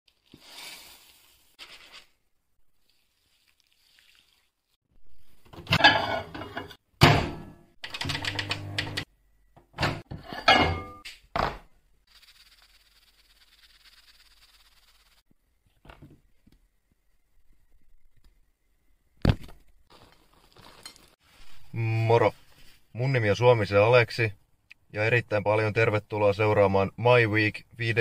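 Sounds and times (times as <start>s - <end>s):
microwave dials turning: 7.8s - 9.1s
microwave running hum: 8.0s - 9.0s
microwave door opening and shutting: 9.6s - 10.9s.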